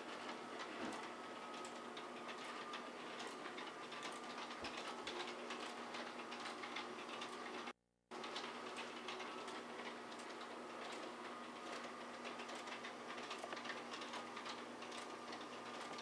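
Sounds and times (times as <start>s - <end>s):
rapid irregular clicking: 0.0s - 16.0s.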